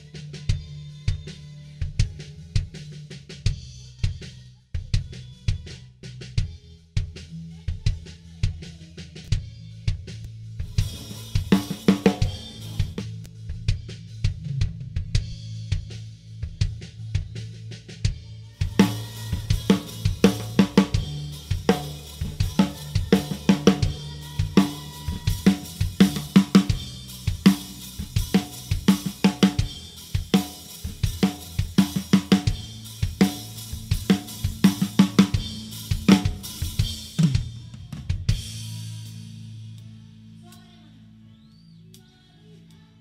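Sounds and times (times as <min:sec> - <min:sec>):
drum kit beat: 0:00.0 - 0:39.8.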